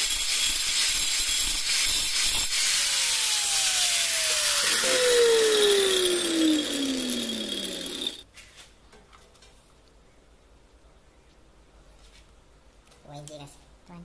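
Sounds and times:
grinding hiss on tile: 0.0s - 3.0s
angle grinder motor winding down: 2.3s - 8.2s.

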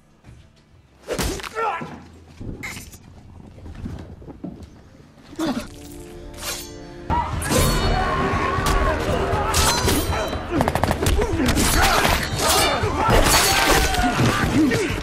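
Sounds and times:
men shouting and grunting: 7.0s - 15.0s.

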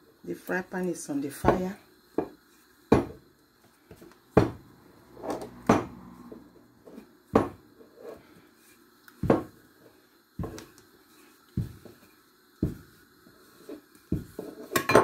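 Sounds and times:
rolling pin knocking on worktop: 2.2s - 3.2s, 4.4s - 4.6s, 7.3s - 7.6s, 9.2s - 9.6s.

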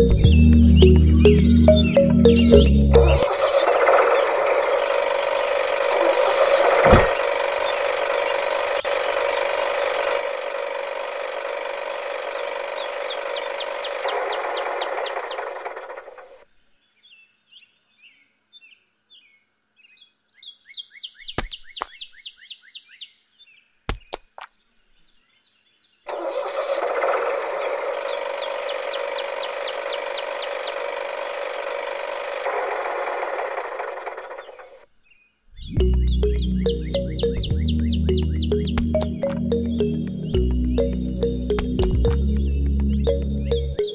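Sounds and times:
bird chirping: 0.0s - 10.2s, 12.7s - 26.2s, 27.5s - 31.0s, 34.2s - 43.9s
small electric motor running: 3.3s - 16.4s, 26.4s - 34.8s.

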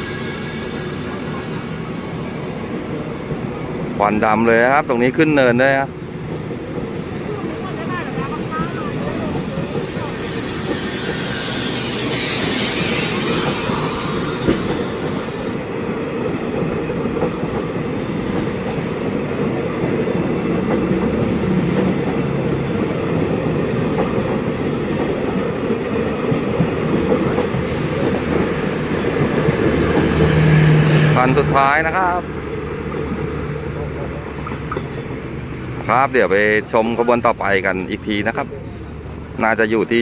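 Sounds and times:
train wheels clattering on rails: 6.1s - 31.2s, 32.4s - 35.8s.

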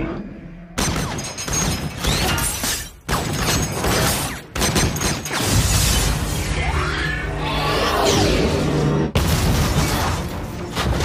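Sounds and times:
explosion blasts and crashing debris: 9.1s - 11.0s.

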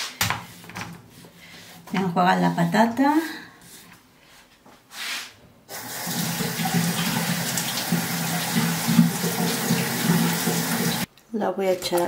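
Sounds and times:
tap water running: 5.7s - 11.1s.

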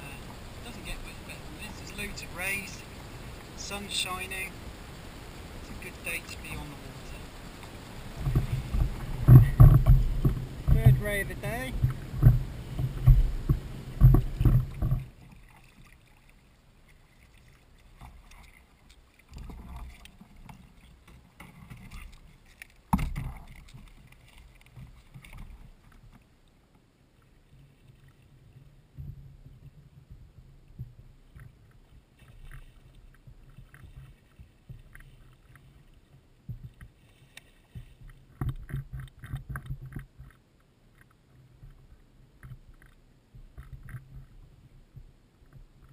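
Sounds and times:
wind buffeting microphone: 0.0s - 15.2s
water lapping against kayak: 0.0s - 45.9s
small clicks and knocks: 36.5s - 44.4s.

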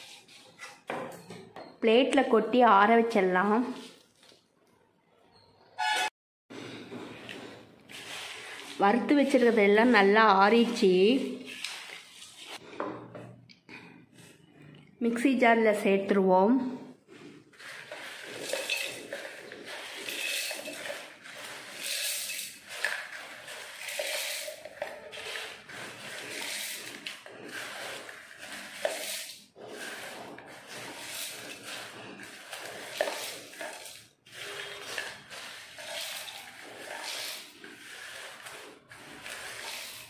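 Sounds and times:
grains rattling against metal: 17.6s - 40.0s.

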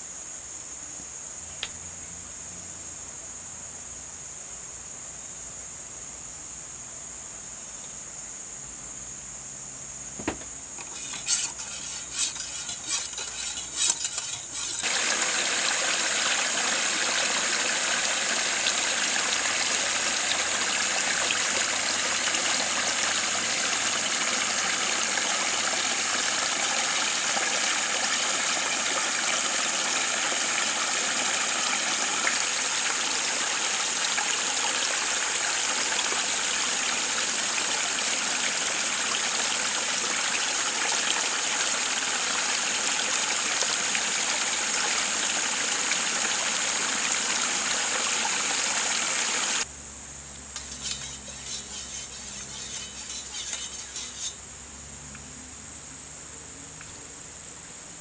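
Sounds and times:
stream water flowing: 10.8s - 49.7s.

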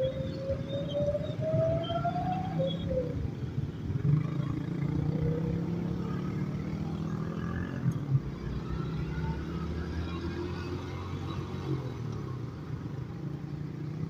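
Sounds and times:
motorcycle engine at low revs: 3.9s - 8.7s.

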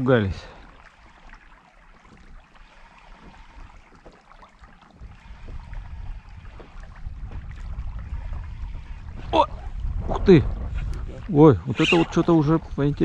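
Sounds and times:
water lapping at boat hull: 0.0s - 13.0s
wind rumble on microphone: 3.2s - 13.0s.

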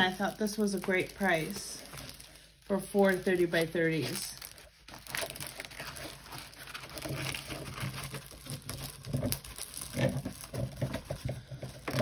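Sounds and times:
canvas and plastic film rustling: 0.0s - 12.0s.

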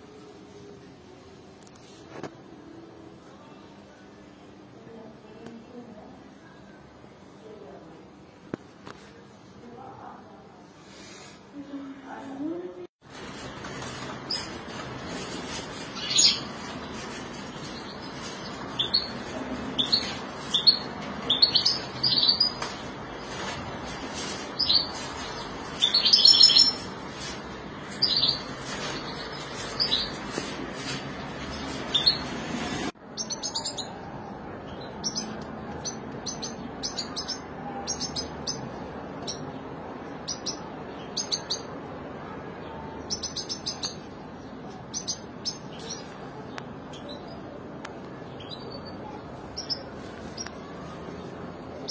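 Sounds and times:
caged birds chirping: 13.1s - 51.9s.

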